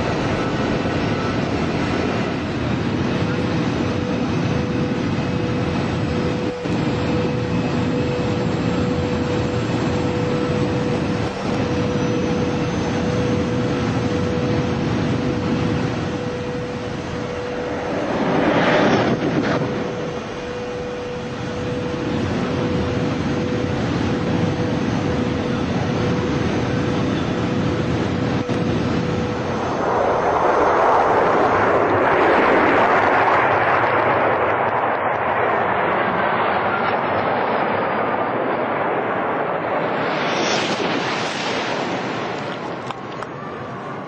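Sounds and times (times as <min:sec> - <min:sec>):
mid-pitched whine: 0:00.0 - 0:34.7
high-speed train roaring: 0:00.0 - 0:44.0.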